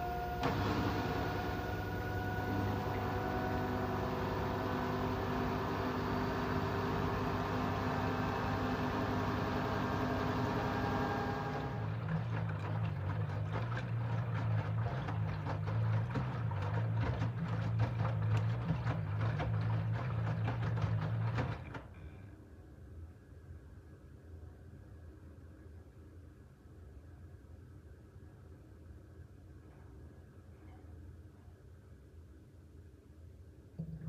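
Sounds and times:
motor hum: 0.0s - 21.8s
washing machine spin whine: 0.0s - 22.0s, 33.8s - 34.0s
laundry splashing and thudding: 11.6s - 21.9s.

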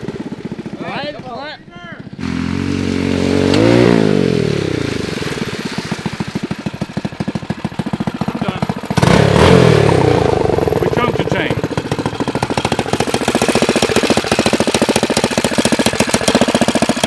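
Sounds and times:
go-kart engines revving: 0.0s - 17.0s.

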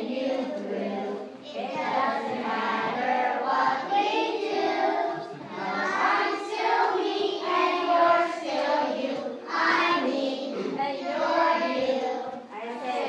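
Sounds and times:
children singing together: 0.0s - 12.5s.

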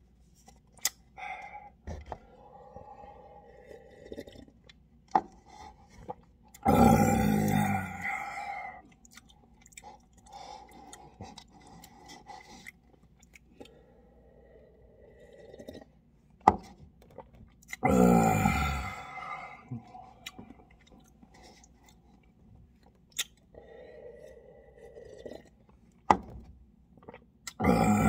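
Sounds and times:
chewing noodles: 8.7s - 14.0s, 19.8s - 26.0s
mouth clicks and smacks: 22.8s - 23.5s.

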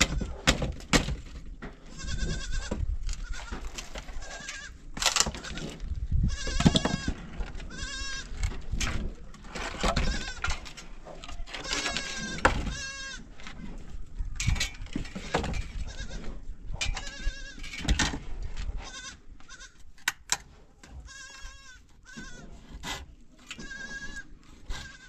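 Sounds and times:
goats bleating: 1.8s - 3.6s, 5.4s - 8.4s, 11.2s - 13.3s, 21.0s - 22.5s, 23.5s - 25.0s.

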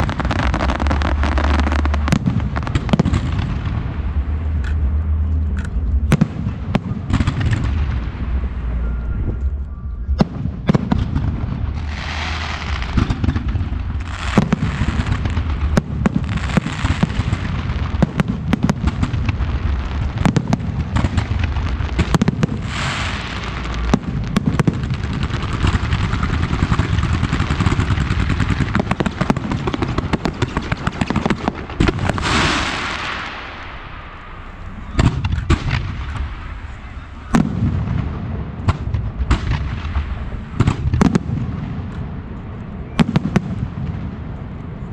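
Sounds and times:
firework bangs: 0.0s - 9.4s, 10.1s - 44.8s
firework crackling hiss: 11.7s - 37.3s.

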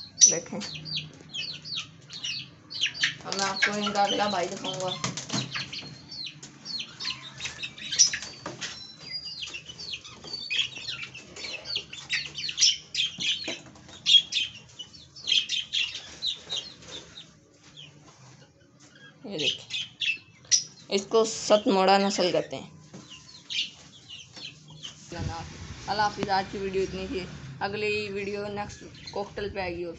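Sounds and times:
chicks peeping and chirping: 0.0s - 29.9s
wing flapping and scuffling: 3.0s - 12.5s.

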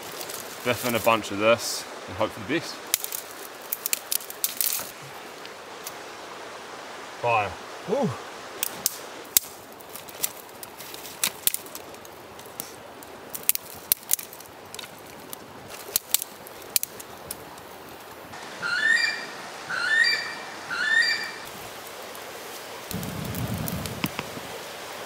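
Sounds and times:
campfire crackling and popping: 2.8s - 6.0s, 8.5s - 18.4s, 21.4s - 25.0s
bird calling: 18.4s - 21.5s.

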